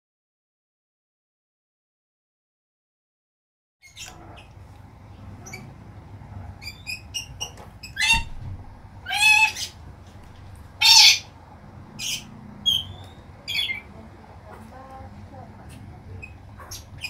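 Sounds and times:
parrot chirping and squawking: 3.8s - 4.6s, 5.4s - 5.8s, 6.6s - 9.9s, 10.6s - 11.4s, 12.0s - 13.9s, 16.1s - 17.0s.

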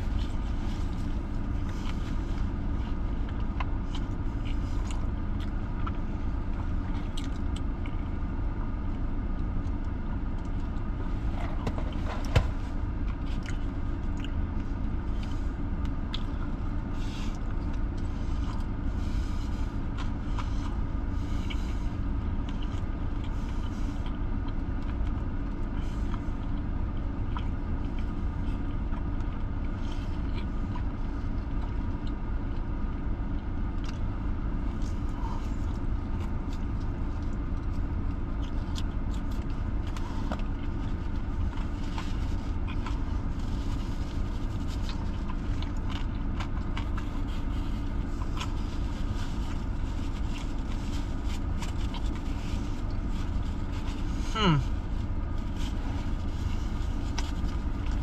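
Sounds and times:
car engine idling: 0.0s - 58.0s
burger wrapper rustling: 33.8s - 58.0s.

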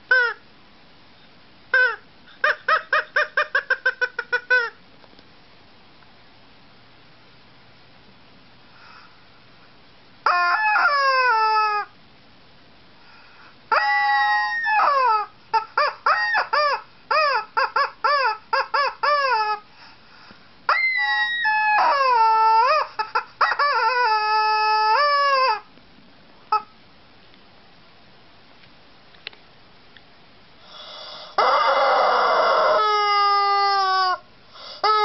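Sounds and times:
rubber chicken toy squawking: 0.1s - 0.4s, 1.7s - 4.8s, 10.2s - 11.9s, 13.7s - 19.7s, 20.7s - 25.7s, 26.5s - 26.7s, 30.8s - 35.0s.

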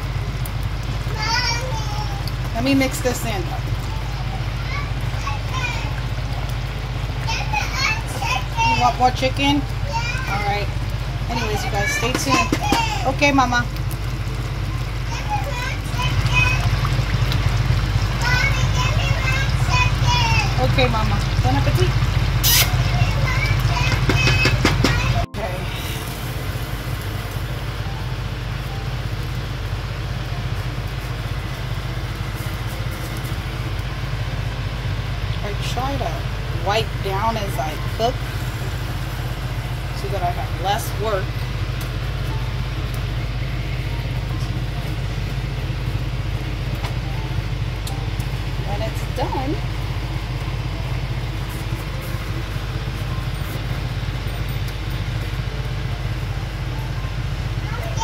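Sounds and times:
low mechanical hum: 0.0s - 58.0s
even hiss: 22.4s - 23.0s.

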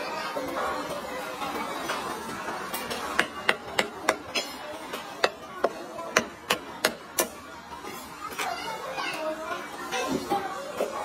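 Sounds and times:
knife chopping on wooden board: 3.1s - 4.4s, 5.2s - 7.3s.

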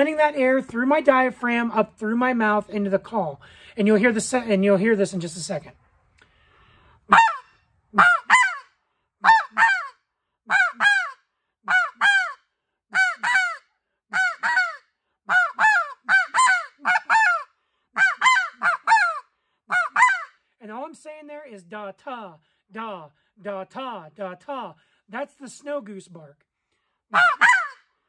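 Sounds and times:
goose call short high notes: 7.1s - 12.4s, 13.0s - 20.3s.

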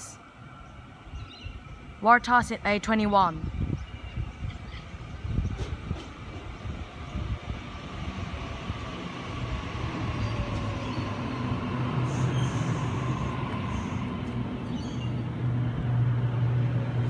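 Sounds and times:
train low hum: 0.0s - 17.0s.

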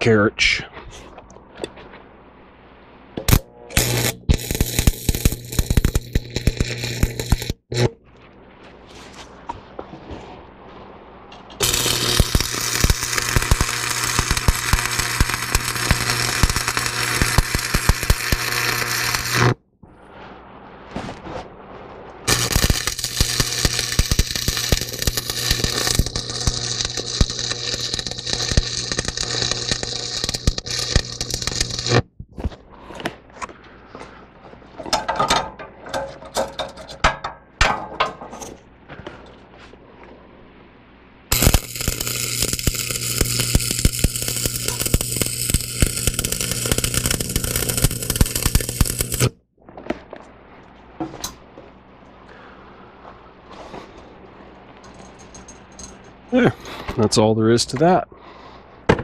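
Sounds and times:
welding arc crackling and humming: 3.2s - 8.0s, 11.6s - 19.6s, 22.2s - 32.3s, 41.3s - 49.4s.

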